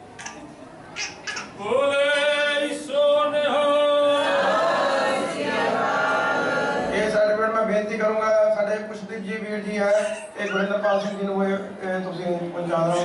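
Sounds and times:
congregation answering together: 1.4s - 7.2s
man calling over loudspeakers: 7.1s - 13.0s.

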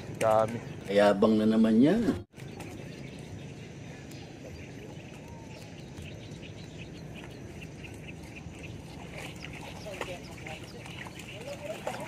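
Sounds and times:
low outdoor background rumble: 0.0s - 12.0s
small birds chirping: 0.0s - 12.0s.

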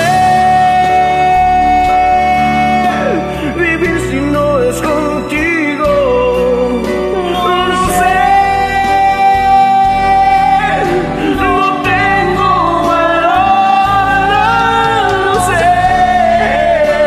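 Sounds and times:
karaoke backing track: 0.0s - 17.0s
woman singing: 7.4s - 17.0s.

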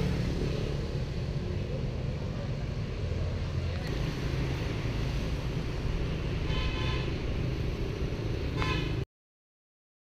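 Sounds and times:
street traffic rumble: 0.0s - 9.1s
vehicle horn toots: 6.4s - 7.2s, 8.5s - 9.0s.

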